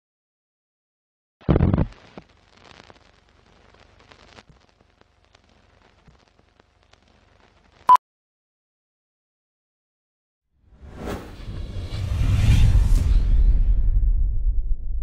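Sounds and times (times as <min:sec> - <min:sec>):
old film crackle and ticks: 0:01.9 - 0:07.9.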